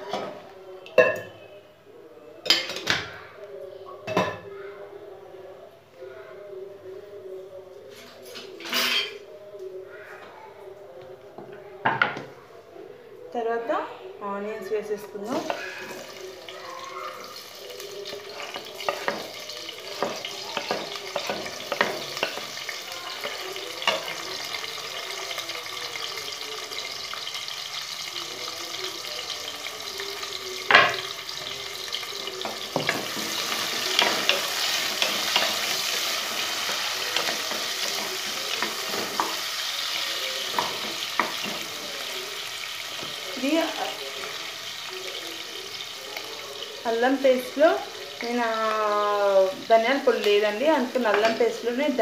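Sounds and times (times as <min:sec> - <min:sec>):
onions sizzling in hot oil: 0:15.0 - 0:52.0.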